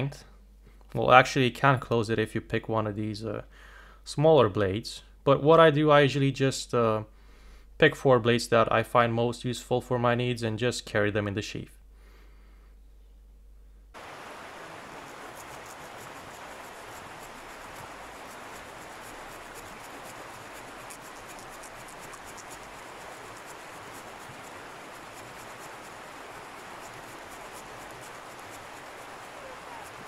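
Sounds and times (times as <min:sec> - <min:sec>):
saw blade rasping through branch: 0:15.1 - 0:30.0.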